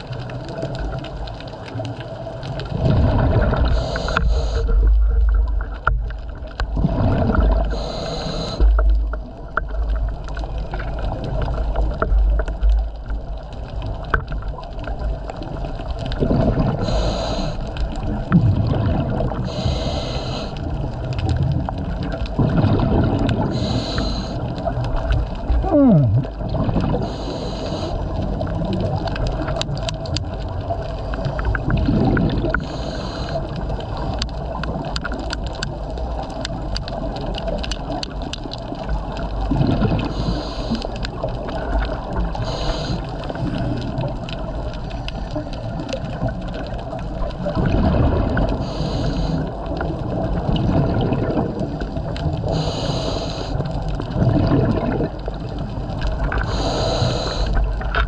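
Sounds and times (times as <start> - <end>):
low underwater rumble: 0.0 - 58.0
bubbly underwater exhalation: 2.5 - 7.9, 14.9 - 17.0, 17.9 - 19.6, 21.3 - 23.8, 24.6 - 27.2, 28.1 - 32.7, 38.8 - 48.8, 49.4 - 52.5, 53.9 - 56.6
hissing regulator breaths: 3.6 - 4.9, 7.6 - 8.8, 16.8 - 17.7, 19.4 - 20.6, 23.5 - 24.4, 27.0 - 28.0, 32.5 - 33.5, 40.0 - 41.0, 42.4 - 43.2, 48.6 - 49.6, 52.5 - 53.6, 56.4 - 57.7.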